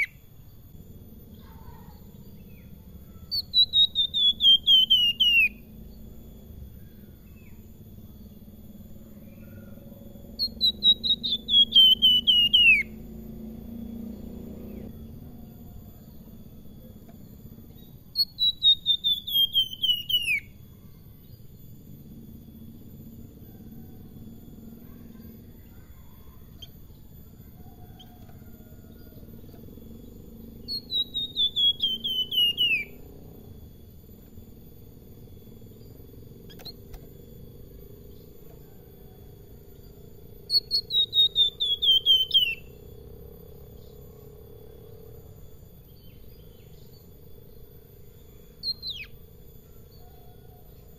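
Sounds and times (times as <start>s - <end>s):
bird singing falling notes: 28.1s - 33.0s, 35.8s - 38.6s.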